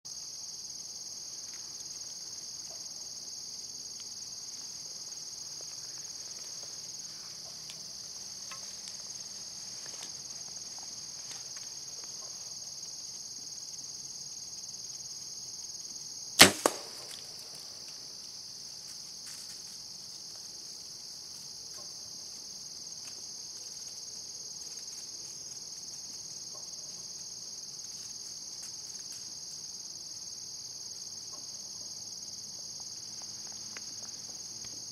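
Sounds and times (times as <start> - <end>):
crickets trilling: 0.1 - 34.9
arrow striking target: 16.4 - 17.4
bow string snap: 16.4 - 17.4.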